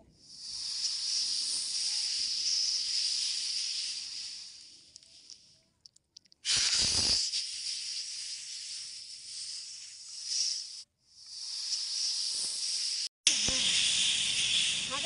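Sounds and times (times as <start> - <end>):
snake hissing: 0.2 - 5.4, 6.4 - 15.0.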